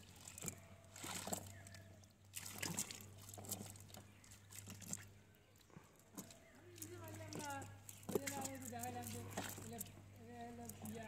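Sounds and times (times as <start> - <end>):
small splashes and drips from net: 0.0 - 11.0.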